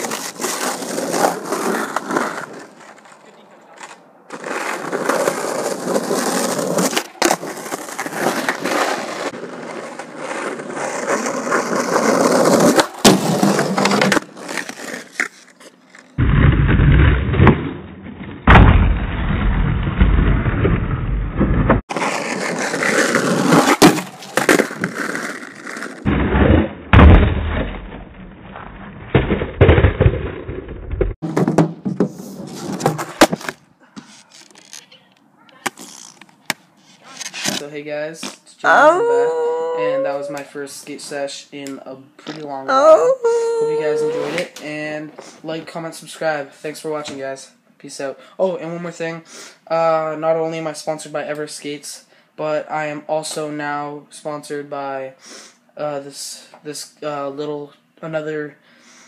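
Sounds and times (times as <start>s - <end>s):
skateboard wheels rolling on pavement: 0.0s - 16.2s, 19.4s - 26.1s, 29.1s - 37.6s.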